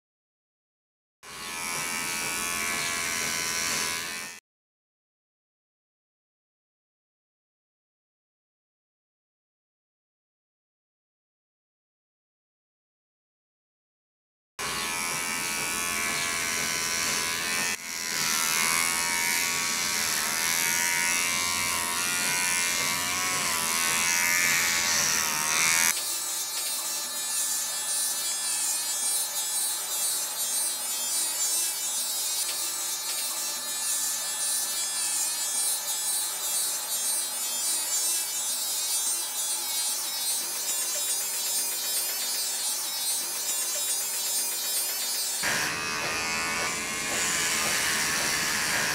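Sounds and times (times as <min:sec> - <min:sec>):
electric hair clipper buzzing: 0:01.3 - 0:04.4, 0:14.6 - 0:48.9.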